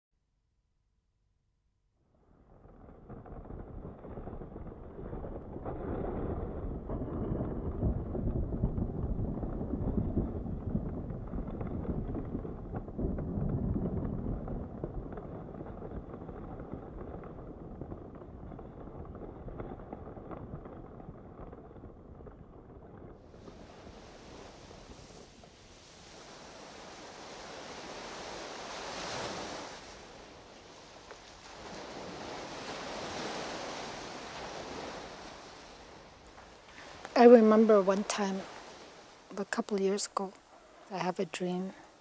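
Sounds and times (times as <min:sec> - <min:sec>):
low steady rumbling: 0:02.1 - 0:28.9.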